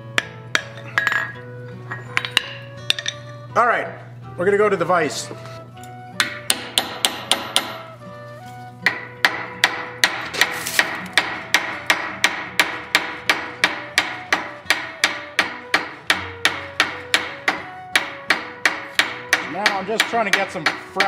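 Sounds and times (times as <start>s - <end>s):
hammer striking hot steel: 6.2s - 7.9s, 8.8s - 21.0s.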